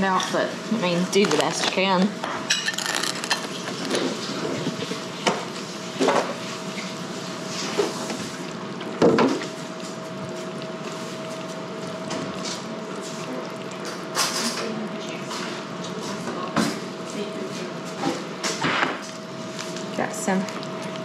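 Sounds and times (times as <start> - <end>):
kitchen clatter: 1.1 - 5.4.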